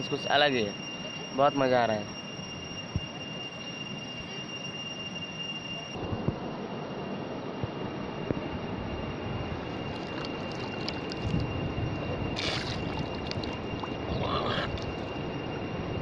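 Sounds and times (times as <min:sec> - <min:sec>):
river water running over stones: 0:09.8 - 0:11.5, 0:12.4 - 0:15.1
man rinsing mouth and spitting: 0:12.4 - 0:15.0.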